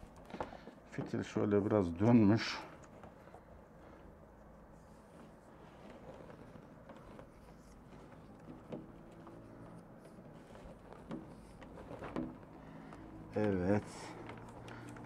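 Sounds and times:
soft rubbing of rubber gasket: 0:00.0 - 0:15.0
light clicks and taps: 0:06.3 - 0:15.0.

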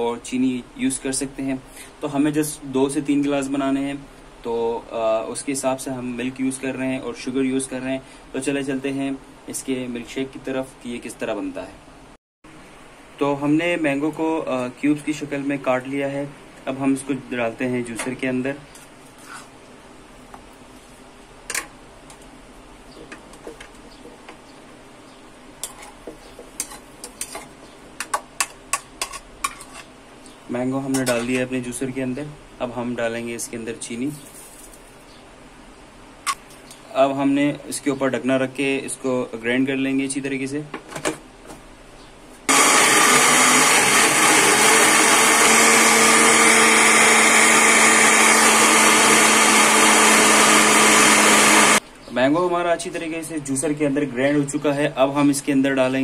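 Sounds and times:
blender whirring: 0:42.5 - 0:51.8.

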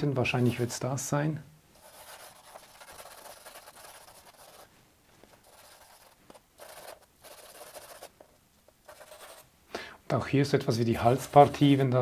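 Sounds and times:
charcoal scratching on paper: 0:01.8 - 0:04.7, 0:05.3 - 0:09.5, 0:11.0 - 0:11.8.

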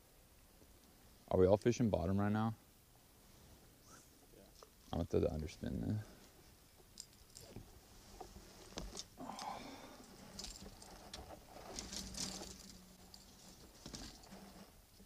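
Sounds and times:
clothing rustling: 0:09.8 - 0:14.9.

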